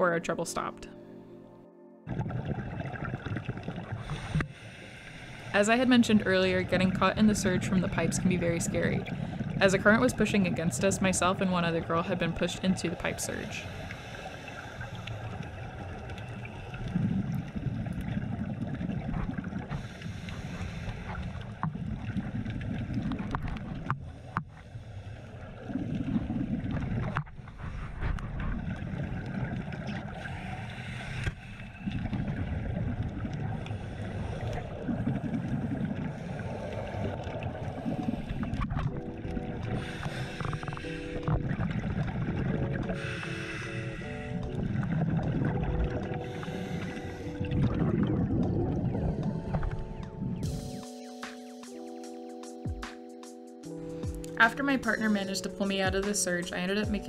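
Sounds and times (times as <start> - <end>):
music: 0.0 - 3.1, 3.8 - 15.1, 19.7 - 21.3, 36.1 - 57.0
muffled underwater current rushing: 25.3 - 50.9.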